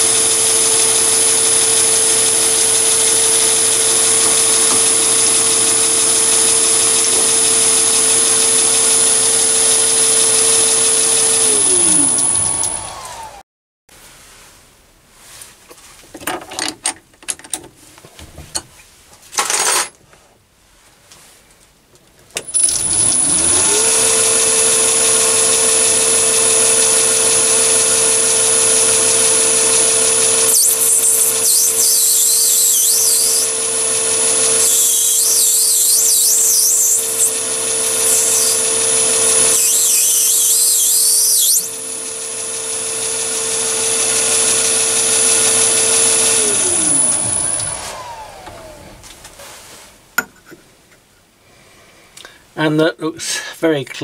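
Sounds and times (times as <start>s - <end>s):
lathe motor whine: 0.0s - 13.4s, 22.5s - 49.1s
shrill scraping of cutting tool: 0.0s - 13.4s, 22.4s - 48.8s.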